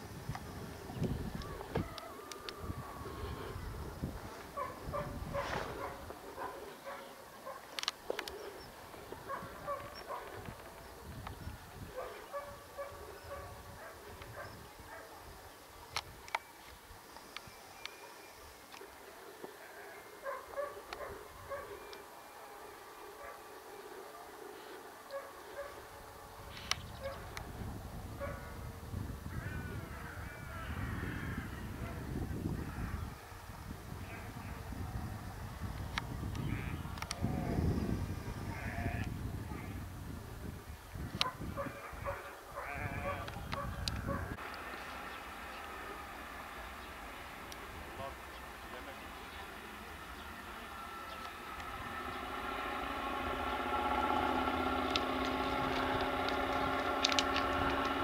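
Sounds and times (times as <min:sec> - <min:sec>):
wind rumbling on microphone: 0:00.0 - 0:06.6, 0:08.4 - 0:16.2, 0:25.8 - 0:44.6
distant calls: 0:00.0 - 0:27.4, 0:41.2 - 0:58.0
dog barking and whining: 0:04.6 - 0:07.7
sharp clicks: 0:54.8 - 0:58.0.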